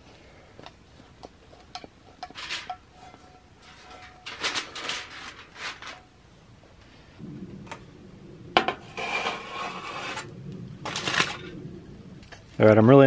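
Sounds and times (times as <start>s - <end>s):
aluminium foil crinkling: 1.7s - 6.1s.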